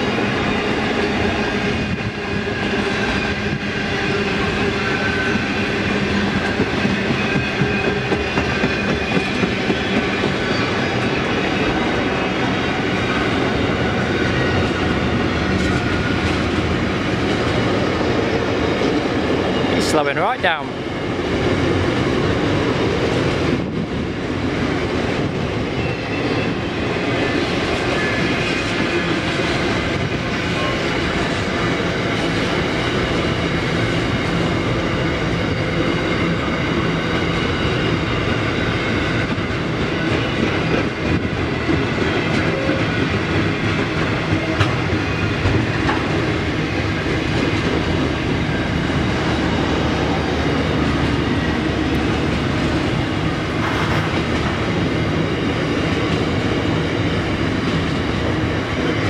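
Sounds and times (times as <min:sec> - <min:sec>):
train wheels rolling on rails: 0:00.0 - 0:59.0.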